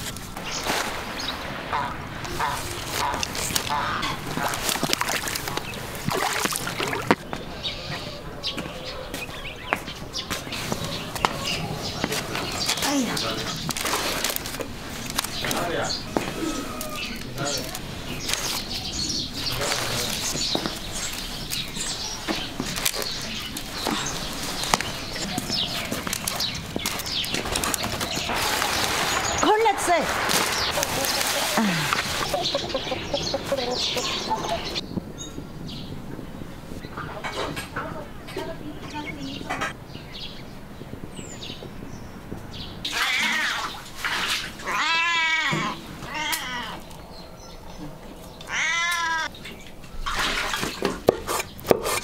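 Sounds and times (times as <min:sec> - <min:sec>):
birds chirping: 0:00.0 - 0:51.9
cat meowing: 0:42.9 - 0:43.8, 0:44.6 - 0:46.8, 0:48.5 - 0:49.3.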